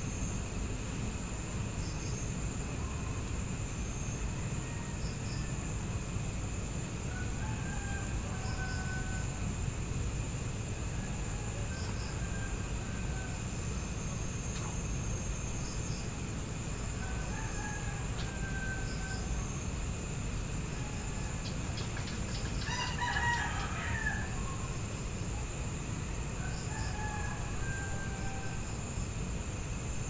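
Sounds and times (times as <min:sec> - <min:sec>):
insects chirring: 0:00.0 - 0:30.0
bird calls: 0:21.4 - 0:22.8.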